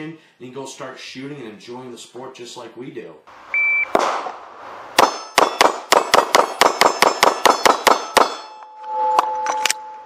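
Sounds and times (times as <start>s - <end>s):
pistol shots: 3.9s - 4.4s, 5.0s - 8.5s
steel targets clanging: 5.0s - 9.7s
steady ringing tone: 8.0s - 10.0s.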